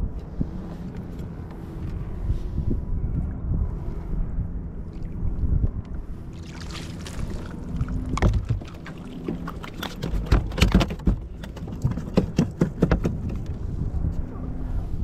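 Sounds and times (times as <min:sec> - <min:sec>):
low rumble: 0:00.0 - 0:10.5
water slapping against kayak hull: 0:06.4 - 0:13.4.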